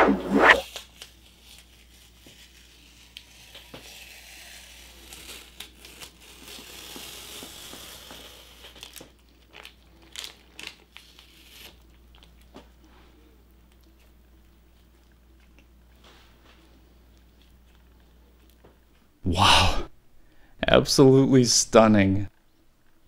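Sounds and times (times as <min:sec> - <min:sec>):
tape peeling and crinkling: 0:00.4 - 0:12.7.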